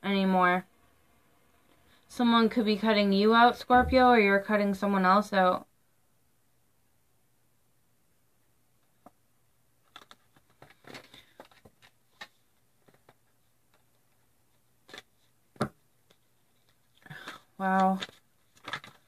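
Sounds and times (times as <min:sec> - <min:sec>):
cards being shuffled: 0:09.8 - 0:14.1, 0:14.8 - 0:19.0.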